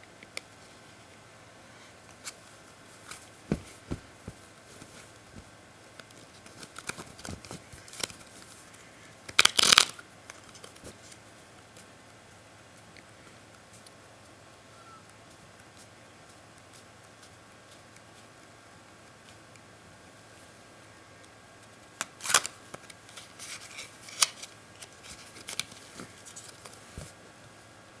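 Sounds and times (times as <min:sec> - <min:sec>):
riffle of playing cards: 0:02.1 - 0:11.9, 0:22.0 - 0:27.2
playing cards clicking: 0:09.3 - 0:10.8, 0:22.0 - 0:27.1.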